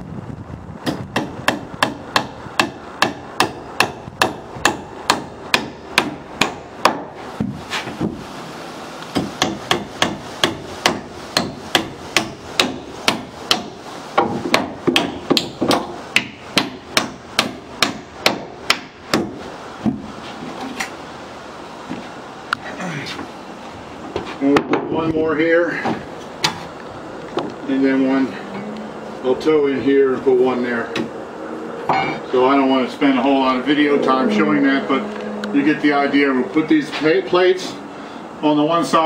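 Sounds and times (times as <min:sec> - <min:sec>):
hammer driving nails into wood: 0:09.2 - 0:19.4.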